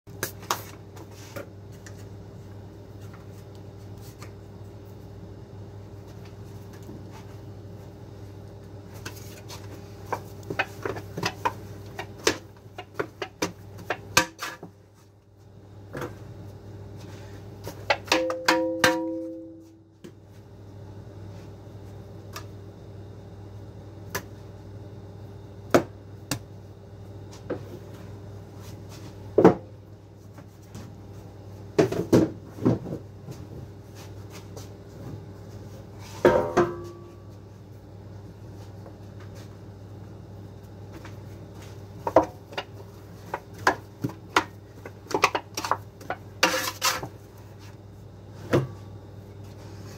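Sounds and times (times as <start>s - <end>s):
low machine hum: 0.1s - 49.9s
dough scraper knocking and clattering: 10.5s - 14.7s, 17.9s - 19.3s.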